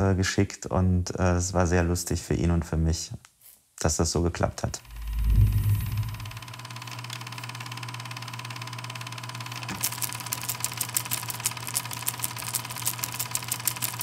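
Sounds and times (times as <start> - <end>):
low hum: 4.8 - 6.5
rapid sharp clicking: 9.8 - 14.0.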